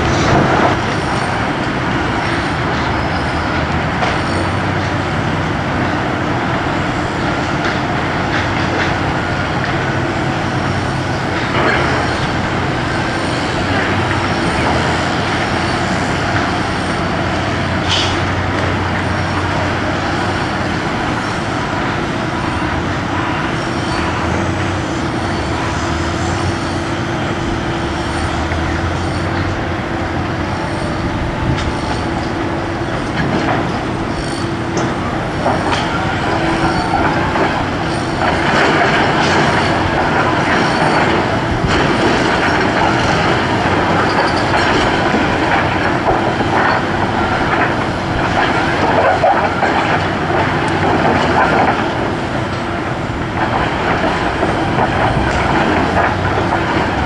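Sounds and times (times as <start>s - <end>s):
diesel engine and hydraulics running: 0.0s - 57.0s.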